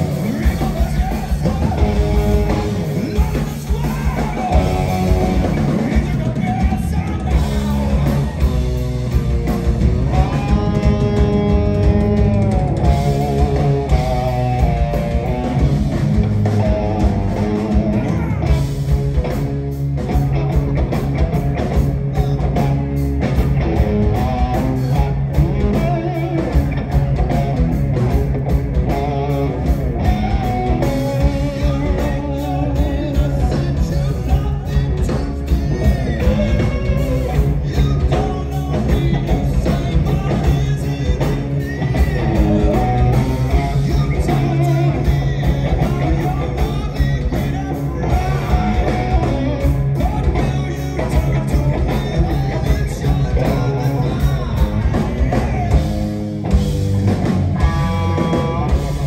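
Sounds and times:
man singing: 0:00.0 - 0:09.0, 0:16.5 - 0:18.8, 0:21.8 - 0:23.1, 0:28.9 - 0:56.1, 0:57.6 - 0:59.0
bass guitar: 0:00.0 - 0:59.0
distorted electric guitars: 0:00.0 - 0:59.0
drums: 0:00.0 - 0:59.0.

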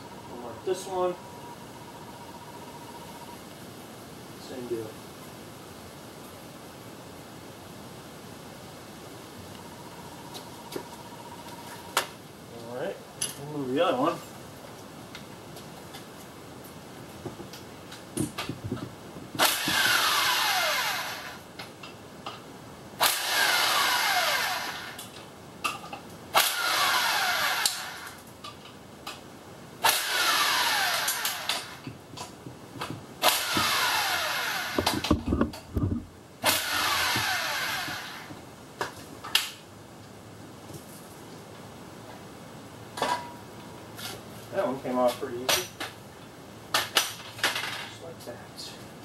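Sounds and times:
impact wrench bursts: 0:19.4 - 0:21.4, 0:23.0 - 0:25.1, 0:26.3 - 0:28.2, 0:29.8 - 0:31.9, 0:33.2 - 0:35.2, 0:36.4 - 0:38.4.

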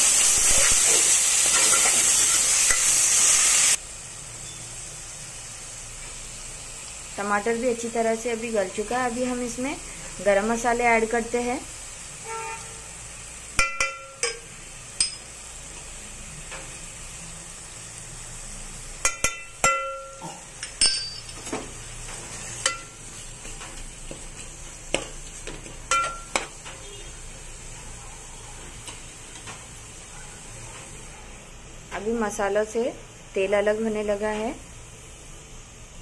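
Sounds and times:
low sizzle of frying: 0:00.0 - 0:36.0
metal spoon clinking and scraping pot: 0:00.5 - 0:02.9, 0:13.6 - 0:15.3, 0:19.0 - 0:21.6, 0:22.6 - 0:23.0, 0:25.4 - 0:26.8.

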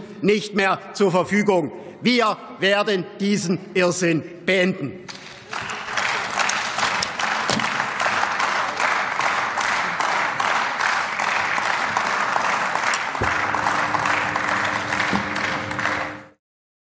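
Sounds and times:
crowd applauding: 0:05.1 - 0:16.4.

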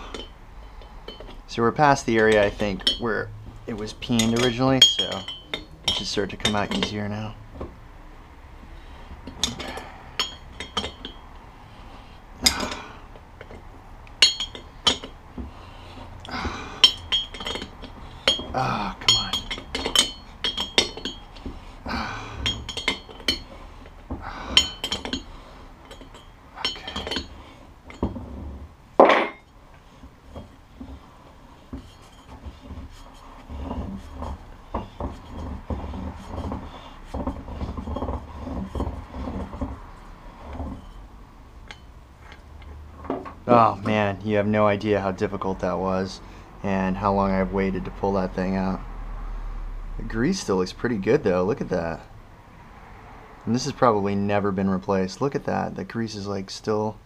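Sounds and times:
steel wrenches clinking on metal: 0:00.0 - 0:07.3, 0:09.2 - 0:11.4, 0:12.4 - 0:15.2, 0:16.2 - 0:29.6, 0:31.6 - 0:41.0
soft metal rattling: 0:00.0 - 0:07.8, 0:09.2 - 0:11.5, 0:12.4 - 0:44.1.

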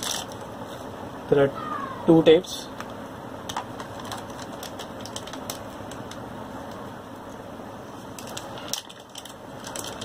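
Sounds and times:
plastic packets crinkling: 0:00.0 - 0:00.4, 0:03.5 - 0:06.2, 0:08.2 - 0:10.0.

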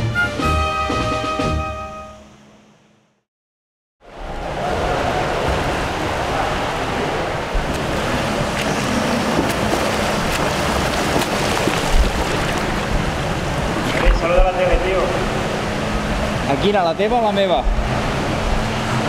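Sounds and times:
swimmers splashing in pool: 0:04.5 - 0:15.9.

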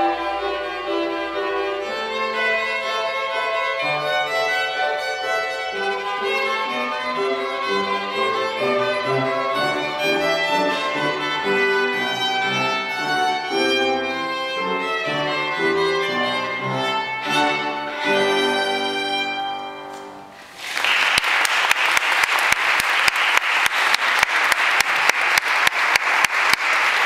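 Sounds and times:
solo violin melody: 0:00.0 - 0:20.3
audience applause: 0:20.4 - 0:27.0
sharp hand claps: 0:20.6 - 0:27.0.

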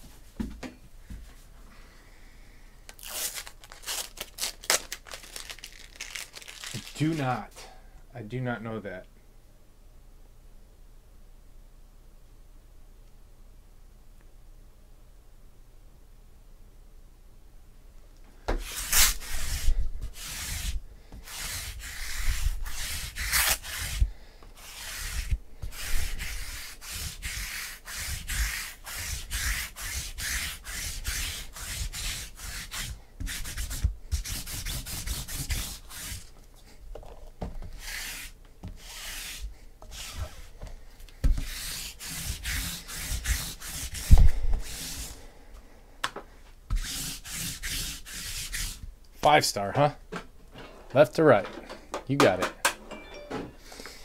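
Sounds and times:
hands scraping cardboard boxes: 0:18.6 - 0:36.3, 0:37.7 - 0:40.6, 0:41.2 - 0:45.2.

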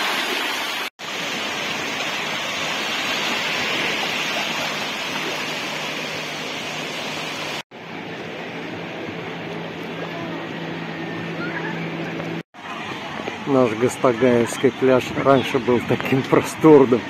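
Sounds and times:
waves washing on shore: 0:00.0 - 0:07.6.

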